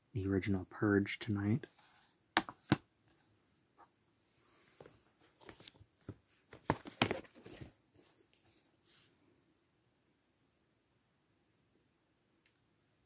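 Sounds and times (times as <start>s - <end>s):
plastic cases rustling and clicking: 4.8s - 8.6s.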